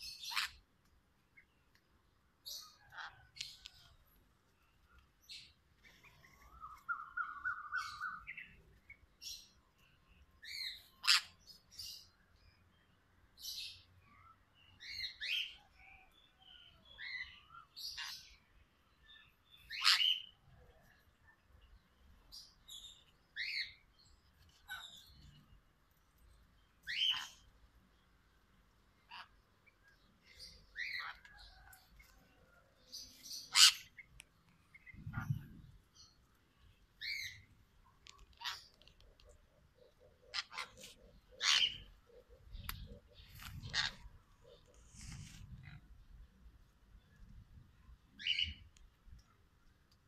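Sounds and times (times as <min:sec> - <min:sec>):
parrots shrill calls: 0:00.1 - 0:00.6, 0:10.8 - 0:11.4, 0:19.7 - 0:20.4, 0:26.8 - 0:27.4, 0:33.4 - 0:34.0, 0:40.3 - 0:42.0, 0:43.6 - 0:44.1.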